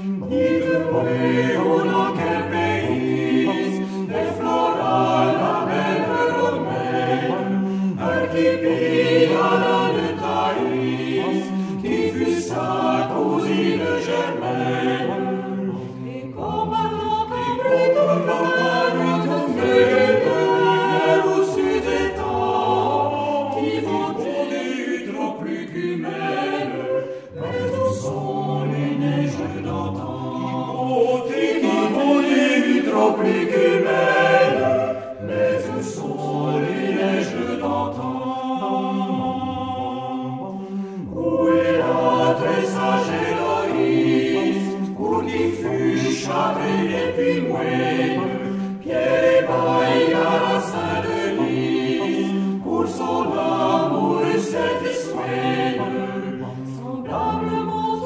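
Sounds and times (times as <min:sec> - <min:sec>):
mixed choir singing: 0:00.0 - 0:58.0
singers breathing: 0:03.8 - 0:04.1, 0:07.6 - 0:08.0, 0:11.5 - 0:11.8, 0:27.0 - 0:27.3, 0:40.5 - 0:41.2, 0:48.5 - 0:48.8.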